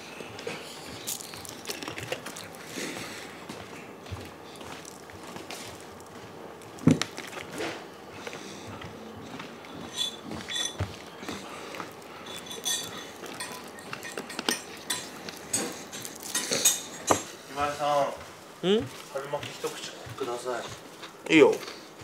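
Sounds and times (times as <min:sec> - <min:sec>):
dishes and utensils clinking: 0:09.7 - 0:11.0, 0:12.2 - 0:17.3.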